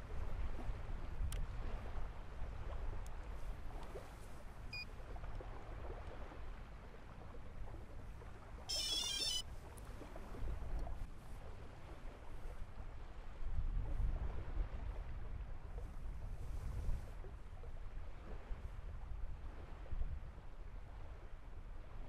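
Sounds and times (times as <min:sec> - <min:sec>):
electronic beep: 0:08.7 - 0:09.4
electronic chirping jingle: 0:08.7 - 0:09.4.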